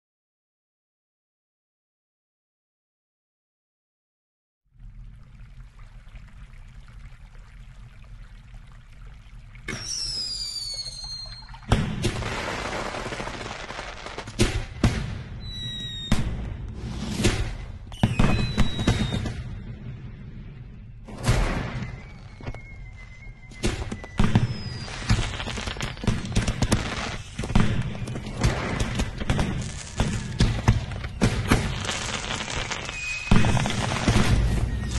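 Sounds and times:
low fireworks rumble: 4.7 - 34.9
fireworks crackling: 9.7 - 19.6, 21.3 - 34.9
whistling rocket: 9.7 - 20.2, 21.0 - 34.9
fireworks bangs: 9.7 - 20.4, 21.0 - 34.9.

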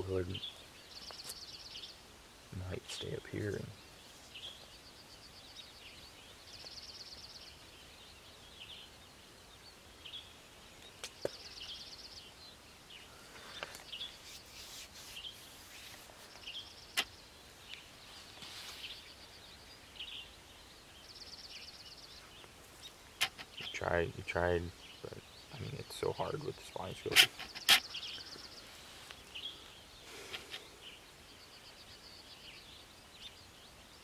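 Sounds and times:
high rapid bird trill: 22.8 - 28.7.

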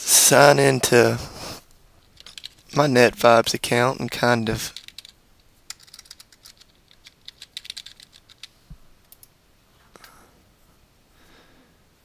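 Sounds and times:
faint keyboard typing: 2.0 - 2.7, 4.6 - 9.3.

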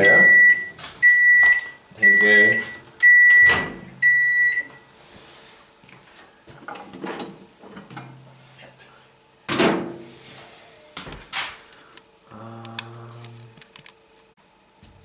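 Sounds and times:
microwave oven beep: 0.0 - 4.9.

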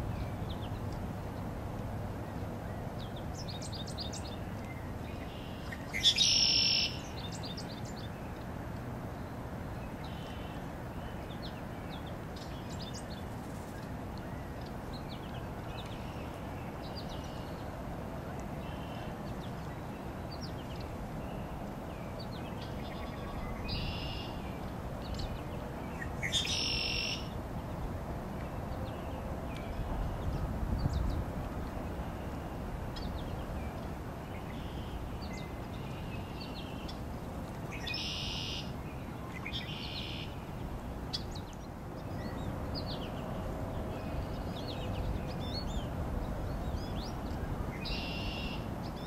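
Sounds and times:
small songbirds chirping: 0.0 - 17.8, 18.5 - 49.0
low background noise: 0.0 - 49.0
bird call phrases: 26.0 - 27.4, 37.7 - 40.4, 47.8 - 48.7.

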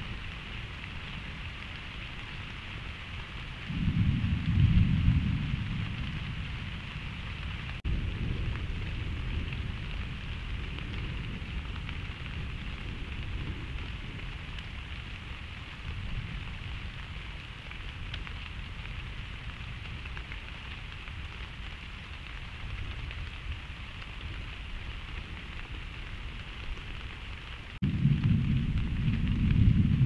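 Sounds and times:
rain hissing: 0.0 - 30.0
thunder rumbling: 0.0 - 30.0
loud deep thunder rumble: 3.7 - 17.2, 27.8 - 30.0.

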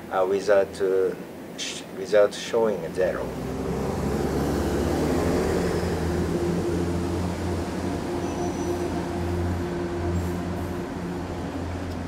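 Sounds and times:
low droning hum: 4.6 - 12.0.

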